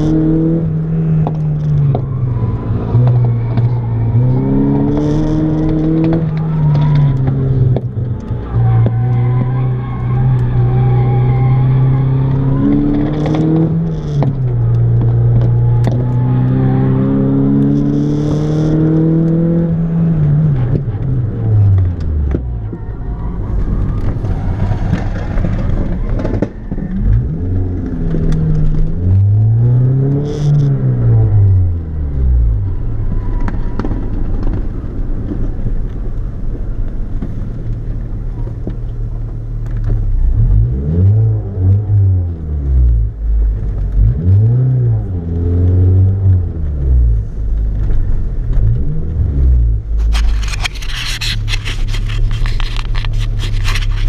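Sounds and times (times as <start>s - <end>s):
crackling scraping noise: 1.1s - 16.4s, 20.2s - 40.7s, 45.0s - 54.0s
car engine revving in cabin: 10.1s - 22.7s, 39.8s - 54.0s.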